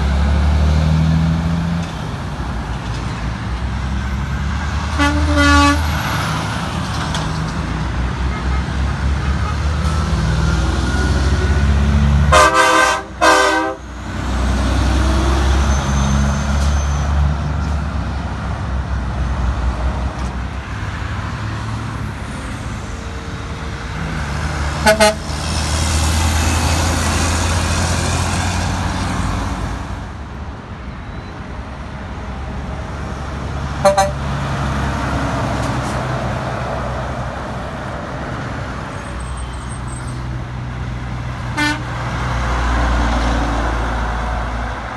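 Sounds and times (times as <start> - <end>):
diesel trucks rumbling past: 0.0 - 44.9
truck horn blasts: 4.9 - 6.0, 12.3 - 13.9, 24.8 - 25.3, 33.8 - 34.3, 41.5 - 41.9.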